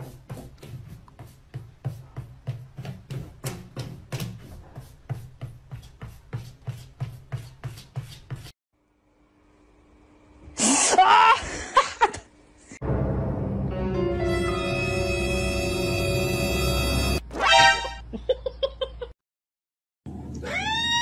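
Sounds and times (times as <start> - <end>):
music: 12.8 - 18.0.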